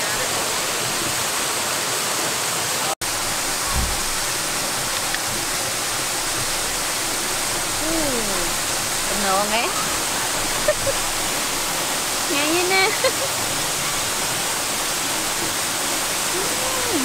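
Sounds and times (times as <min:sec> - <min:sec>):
waterfall rushing: 0:00.0 - 0:17.0
brief low bump: 0:03.7 - 0:04.1.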